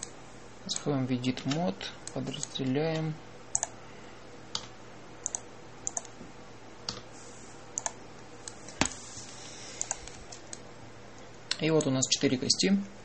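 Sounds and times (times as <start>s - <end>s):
keyboard and mouse clicks: 0.7s - 3.7s, 4.6s - 6.1s, 7.8s - 8.8s, 9.8s - 10.6s.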